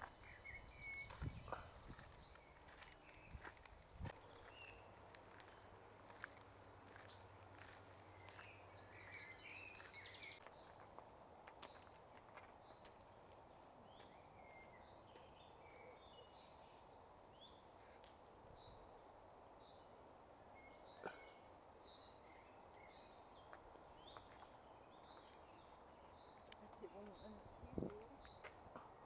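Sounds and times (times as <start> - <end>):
birds chirping: 0.0 - 3.6, 4.2 - 10.7.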